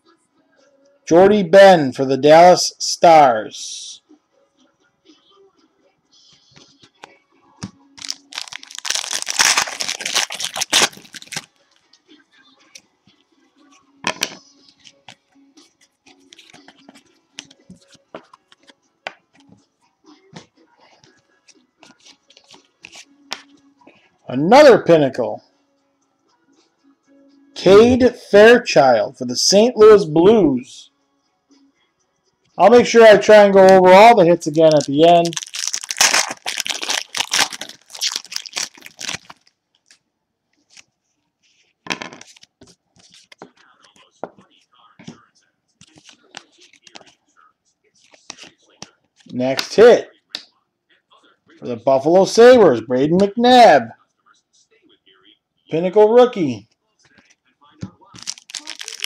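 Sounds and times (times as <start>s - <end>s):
trading cards flipped by hand: 8.0s - 11.4s, 16.1s - 18.8s, 21.5s - 23.5s, 48.0s - 49.8s
cards ticking: 8.0s - 11.5s, 33.7s - 40.0s, 58.2s - 59.0s
foil wrapper crinkling: 8.0s - 11.5s, 34.4s - 39.6s, 58.2s - 59.0s.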